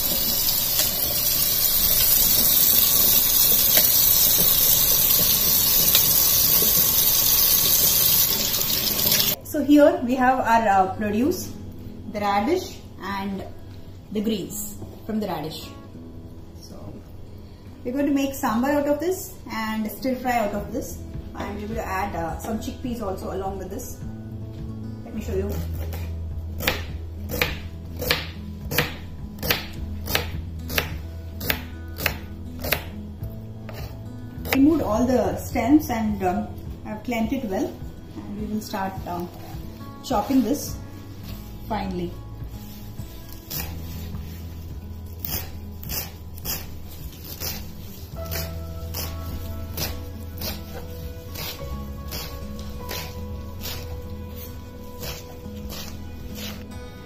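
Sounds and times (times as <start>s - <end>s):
faucet running into metal sink: 0.0s - 9.4s
background music: 0.0s - 57.0s
knife slicing on cutting board: 43.5s - 44.0s, 45.2s - 47.7s, 49.8s - 53.9s, 55.0s - 56.6s.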